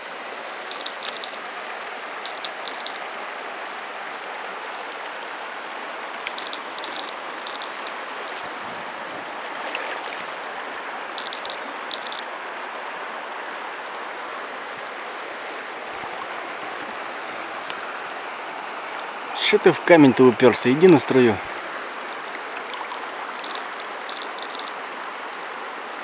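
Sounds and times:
river running over stones: 0.0s - 26.0s.

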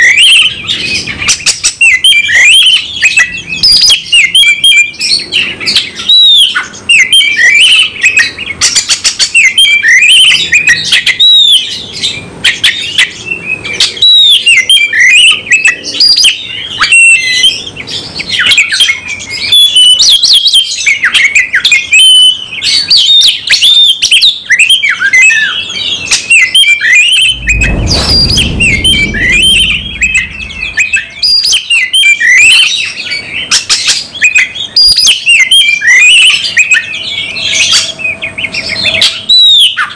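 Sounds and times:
low rumble: 27.0s - 31.6s.

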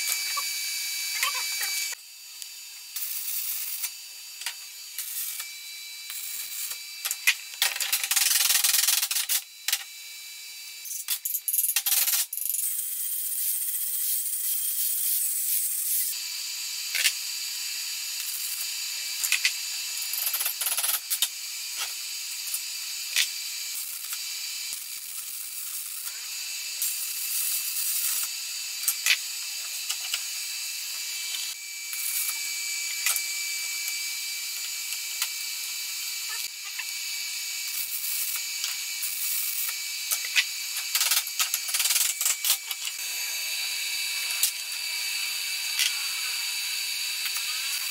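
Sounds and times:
stick welding crackling sizzle: 0.0s - 5.5s
angle grinder grinding steel pipe: 0.0s - 9.9s, 10.7s - 47.9s.

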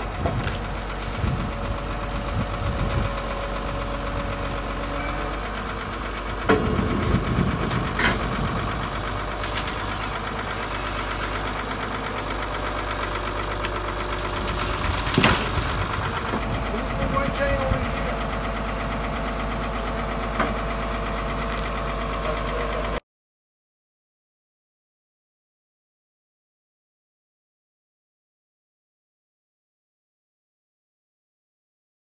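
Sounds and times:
engine running: 0.0s - 23.0s.

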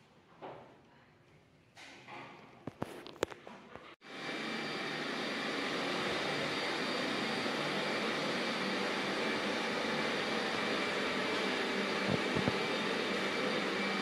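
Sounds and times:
machine running with hiss: 4.1s - 14.0s.

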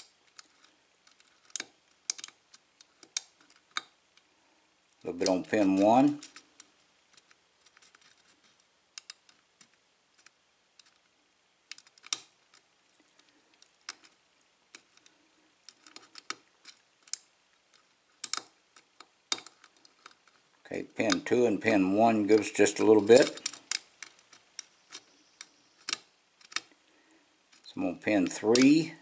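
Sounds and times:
lock pick metallic clicks: 0.0s - 3.9s, 11.7s - 12.6s, 18.2s - 20.2s, 22.3s - 26.7s, 27.5s - 28.8s.

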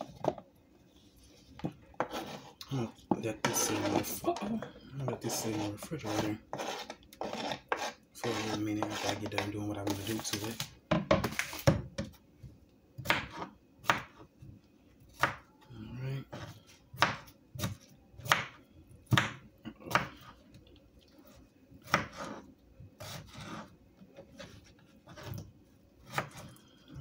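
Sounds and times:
knife chopping on cutting board: 3.4s - 4.2s, 5.1s - 12.2s, 13.0s - 14.2s, 15.1s - 15.4s, 16.3s - 20.3s, 21.8s - 22.4s, 23.0s - 23.7s, 26.0s - 26.5s.

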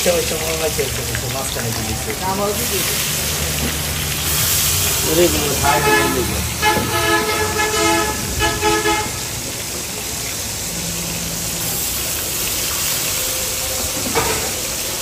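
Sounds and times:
traffic noise: 0.0s - 15.0s
vehicle horn honking: 5.4s - 9.4s.

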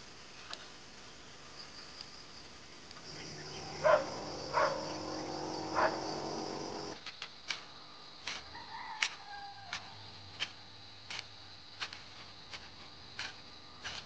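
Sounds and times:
high chorus of insects: 1.1s - 13.8s
low steady hum: 2.6s - 7.0s
dog barking: 3.6s - 6.9s.

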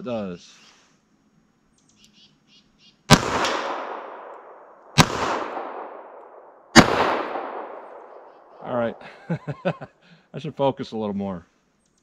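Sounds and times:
faint clicks: 1.7s - 2.2s, 11.8s - 12.0s
revolver shots with echo: 3.1s - 8.4s.

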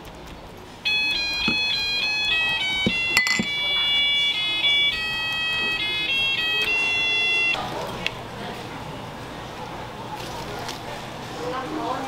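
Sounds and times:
electronic beeping melody: 0.8s - 7.6s.

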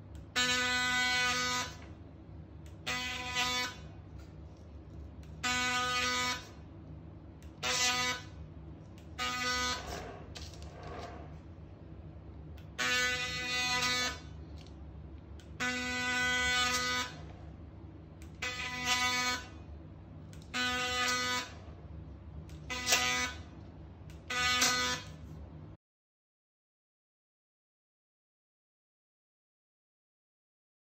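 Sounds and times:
low steady hum: 0.0s - 25.8s
ultrasonic blade buzzing: 0.1s - 2.0s, 2.6s - 6.7s, 7.4s - 11.4s, 12.6s - 14.7s, 15.4s - 17.4s, 18.2s - 21.8s, 22.5s - 25.4s.

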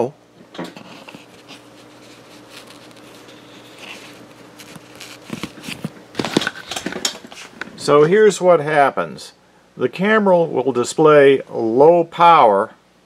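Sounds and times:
faint steady hum: 0.0s - 13.0s
fingers handling wire connectors: 0.7s - 7.2s.

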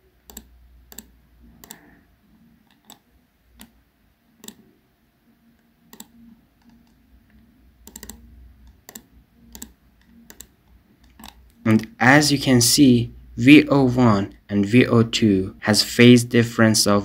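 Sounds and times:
computer mouse clicking: 0.2s - 2.0s, 2.6s - 3.8s, 4.4s - 4.7s, 5.5s - 11.6s.

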